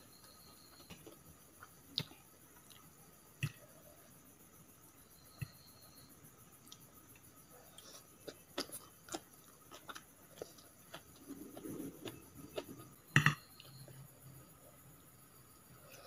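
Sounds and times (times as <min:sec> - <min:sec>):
chewing: 0:06.6 - 0:14.0.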